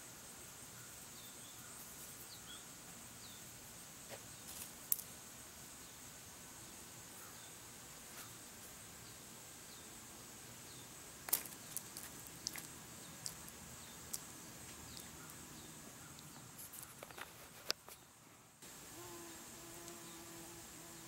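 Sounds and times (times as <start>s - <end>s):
faint background hiss: 0.0s - 21.0s
soft falling chirps: 10.7s - 18.1s.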